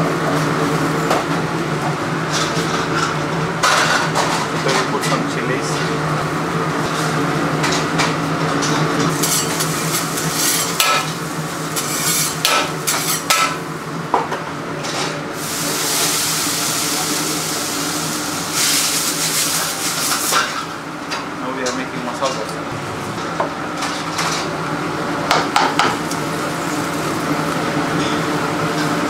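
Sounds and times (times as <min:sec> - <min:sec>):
food sizzling on griddle: 0:09.1 - 0:13.6, 0:15.4 - 0:20.7, 0:26.0 - 0:27.6
metal spatula scraping griddle: 0:11.8 - 0:13.4.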